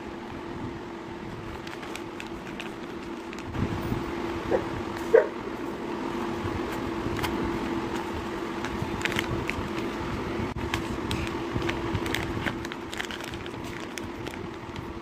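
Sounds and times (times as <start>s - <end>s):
steady low hum: 0.0s - 15.0s
plastic pouch crinkling: 1.4s - 3.6s, 8.0s - 10.0s, 10.7s - 15.0s.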